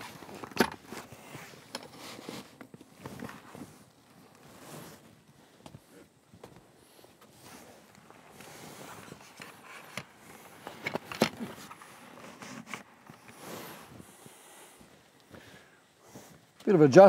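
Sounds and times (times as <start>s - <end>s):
tent poles clicking and knocking: 0.0s - 5.0s, 7.9s - 13.4s
canvas rustling and scraping: 0.0s - 16.6s.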